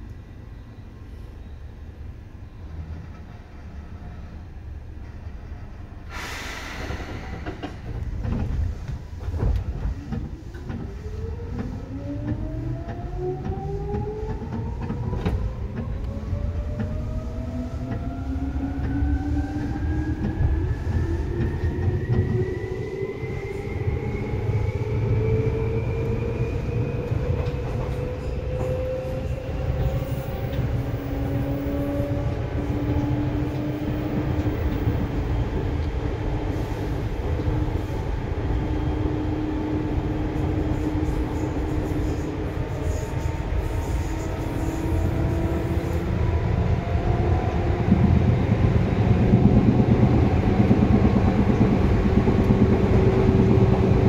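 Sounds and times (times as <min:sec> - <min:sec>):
wheels rumbling on track: 0:01.8 - 0:54.0.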